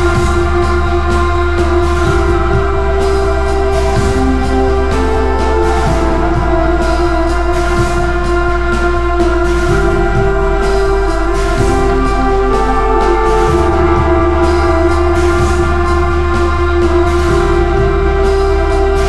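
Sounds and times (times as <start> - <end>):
background music with chords: 0.0 - 19.0.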